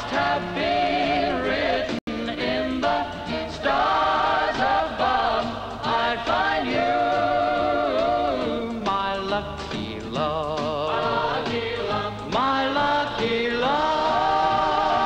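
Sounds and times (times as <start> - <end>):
musical accompaniment: 0.0 - 15.0
man singing a pop love song: 8.6 - 11.2, 12.2 - 14.6.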